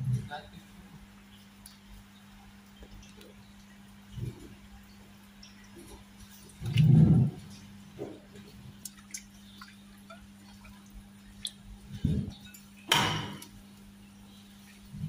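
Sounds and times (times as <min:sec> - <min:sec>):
steady low hum: 0:00.0 - 0:15.0
stirring splash: 0:05.4 - 0:13.9.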